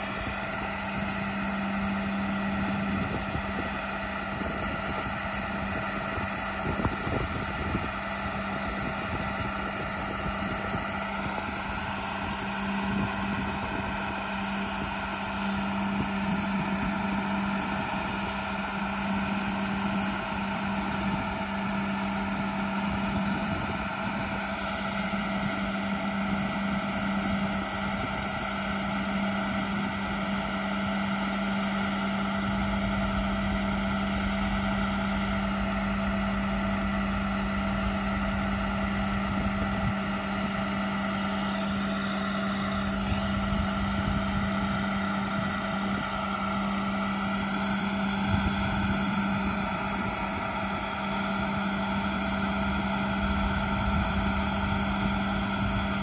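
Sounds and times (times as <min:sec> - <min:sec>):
diesel truck engine running: 0:00.0 - 0:56.0.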